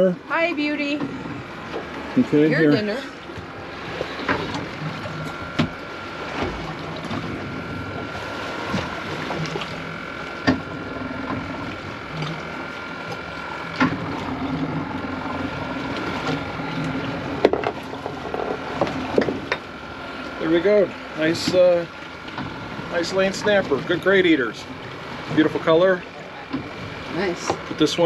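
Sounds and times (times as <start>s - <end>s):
outboard engines idling: 0.0s - 28.0s
sharp clicks and knocks: 16.0s - 19.7s.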